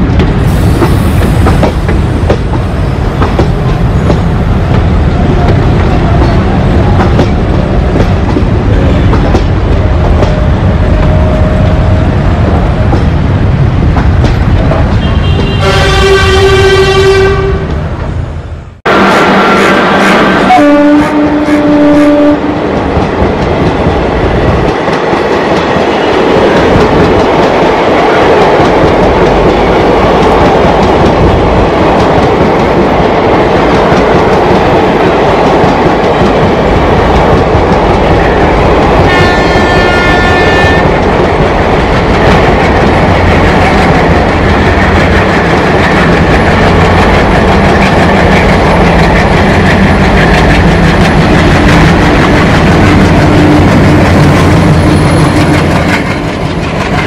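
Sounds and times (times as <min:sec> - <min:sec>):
train horn: 0:10.2 - 0:12.9, 0:15.0 - 0:17.9, 0:18.9 - 0:22.6, 0:38.2 - 0:41.0
wheels clacking over rail joints: 0:22.7 - 0:57.0
diesel locomotive chugging: 0:35.7 - 0:57.0.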